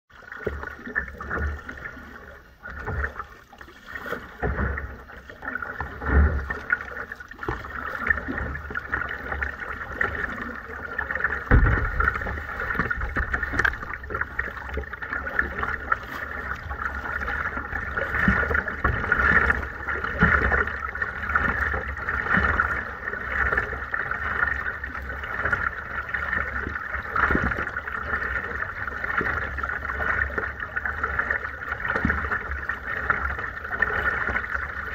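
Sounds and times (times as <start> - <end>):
water splashing along kayak hull: 0.1 - 34.9
low thumps: 11.4 - 14.2.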